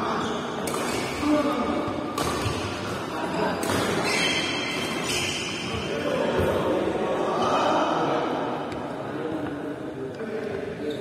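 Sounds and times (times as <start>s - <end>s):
players' voices: 0.0s - 11.0s
rackets striking shuttlecock: 0.6s - 1.2s, 2.1s - 3.0s, 3.6s - 5.1s.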